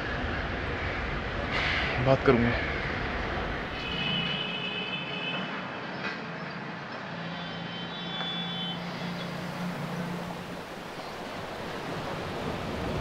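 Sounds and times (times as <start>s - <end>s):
city traffic hum: 0.0s - 13.0s.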